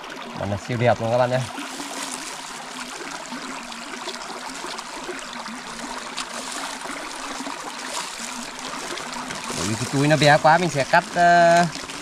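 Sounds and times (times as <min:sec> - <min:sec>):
running water trickling: 0:00.0 - 0:12.0.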